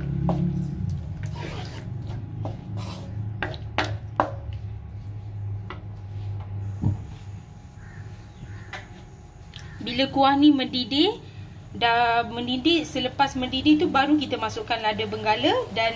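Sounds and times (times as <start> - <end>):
low steady hum: 0.0 - 15.9
wooden spatula scraping a wok: 1.2 - 3.3.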